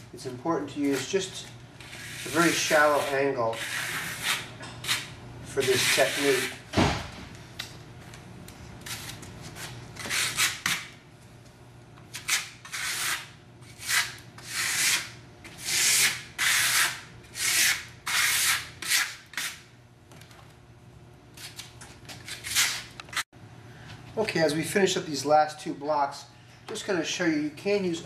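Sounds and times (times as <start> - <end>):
trowel scraping plaster: 1.8 - 6.6, 12.2 - 19.6.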